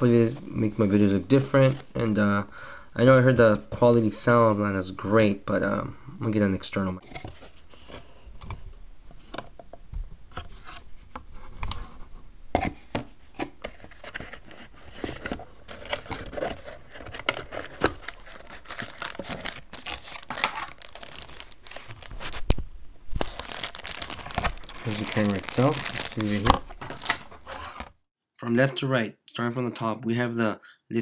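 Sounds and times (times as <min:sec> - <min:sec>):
cardboard and plastic rustling: 0:07.0 - 0:09.7, 0:10.3 - 0:28.0.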